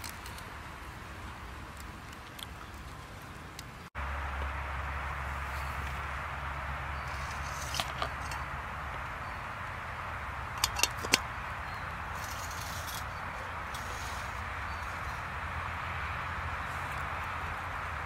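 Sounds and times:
steady hiss: 0:00.0 - 0:18.0
metal teapot lid clinking: 0:10.6 - 0:11.2.

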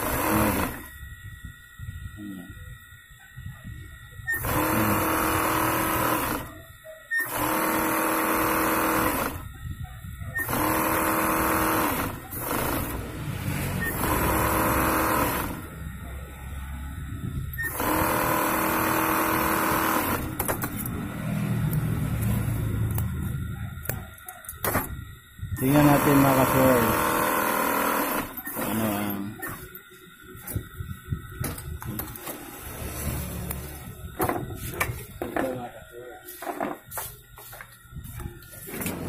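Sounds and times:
sewing machine stitching: 0:00.0 - 0:00.9, 0:04.3 - 0:06.6, 0:07.2 - 0:09.4, 0:10.4 - 0:15.7, 0:17.6 - 0:20.5, 0:25.6 - 0:29.2.

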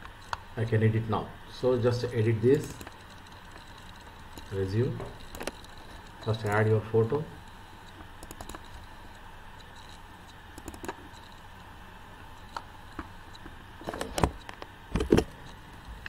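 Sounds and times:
mouse and keyboard clicks: 0:07.9 - 0:08.8, 0:09.6 - 0:11.4.

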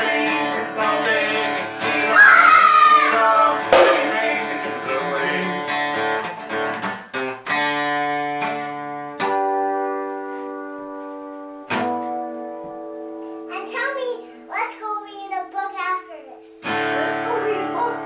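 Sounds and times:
acoustic guitar chords strummed: 0:03.6 - 0:09.8.

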